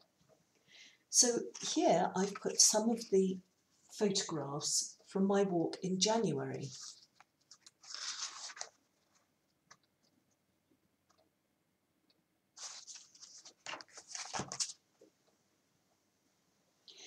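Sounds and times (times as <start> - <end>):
paper and card rustling: 1.4 - 3.1, 6.6 - 10.1, 12.6 - 14.8.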